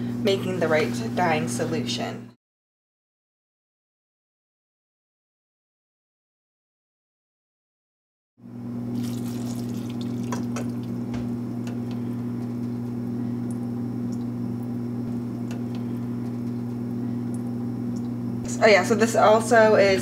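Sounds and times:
low steady hum: 8.5 - 20.0
water pouring: 8.9 - 11.2.

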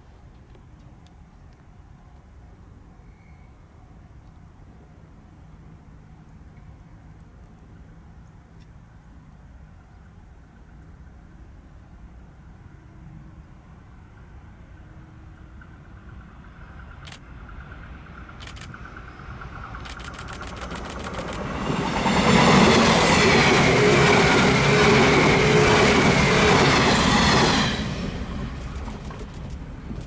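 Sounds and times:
falling whine of train: 0.0 - 7.1, 9.5 - 30.0
electric train passing: 10.2 - 30.0
wheels clicking on rails: 15.6 - 27.5, 28.3 - 30.0.

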